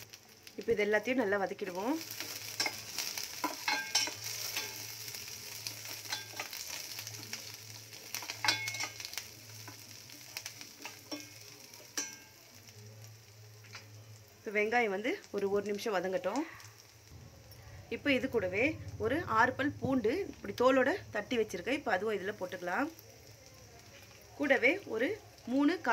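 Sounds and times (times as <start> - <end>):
onions sizzling in oil: 0.0 - 25.9
low steady hum: 16.8 - 22.8.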